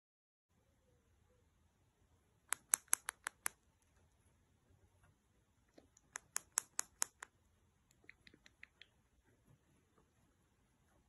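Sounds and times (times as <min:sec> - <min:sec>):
cockatiel tongue clicks: 0:02.5 - 0:03.6, 0:05.8 - 0:07.3, 0:07.9 - 0:09.0.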